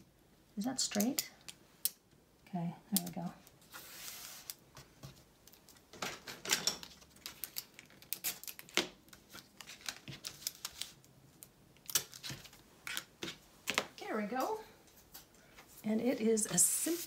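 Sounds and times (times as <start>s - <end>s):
paper and tape rustling: 3.6s - 13.4s, 15.2s - 17.0s.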